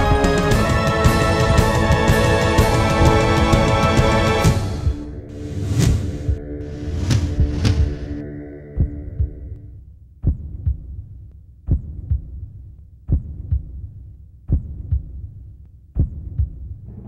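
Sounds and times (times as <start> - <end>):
heartbeat thumps: 1.1 - 17.0
low drone: 2.6 - 9.7.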